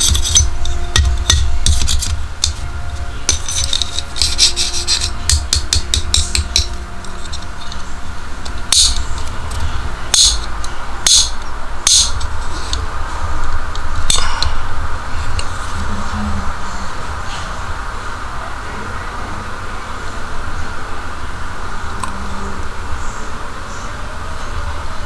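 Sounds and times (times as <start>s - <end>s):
low rumble: 6.7s - 25.0s.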